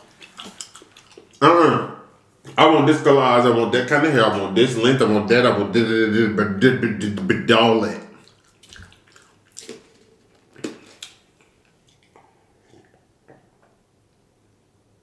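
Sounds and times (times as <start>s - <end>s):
swallowing gulps: 8.1s - 13.5s.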